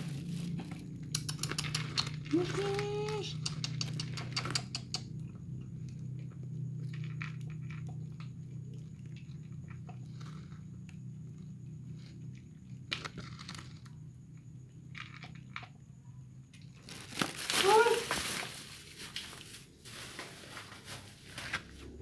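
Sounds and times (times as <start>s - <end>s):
cats crunching dry kibble: 0.0s - 14.1s, 14.7s - 15.7s, 16.6s - 22.0s
steady low hum: 0.0s - 16.6s.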